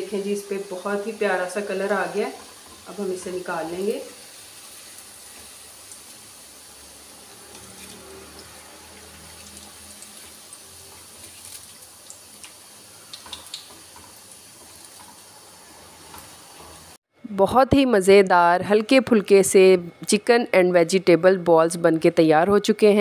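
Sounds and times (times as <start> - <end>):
food deep-frying in oil: 0.0 - 17.0.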